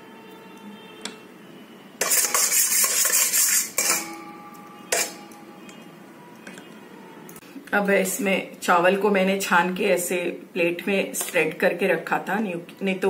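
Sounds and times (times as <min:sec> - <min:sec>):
metal spoon scraping a pot: 0:02.0 - 0:04.2, 0:04.8 - 0:05.8.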